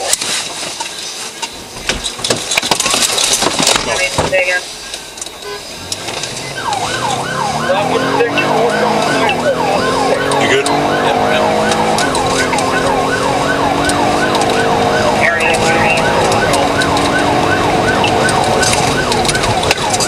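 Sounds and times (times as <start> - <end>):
police siren yelping: 5.6 - 20.0.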